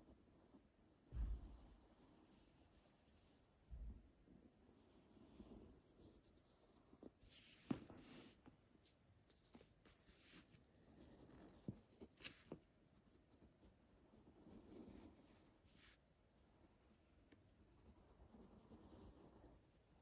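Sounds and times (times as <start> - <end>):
pencil scratching on paper: 0.0 - 0.7, 1.8 - 3.5, 4.7 - 20.0
paper rustling: 12.0 - 12.6.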